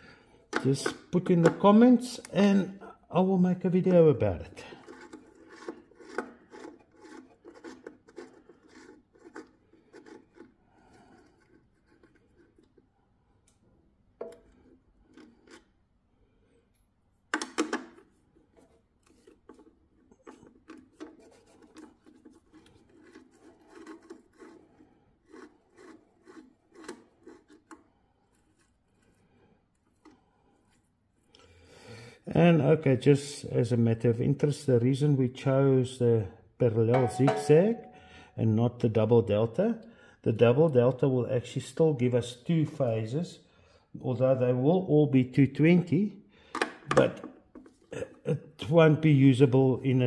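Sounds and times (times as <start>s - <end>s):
nut driver clicking and scraping: 0.5s - 2.5s, 4.8s - 12.8s, 14.2s - 15.8s, 17.3s - 29.2s.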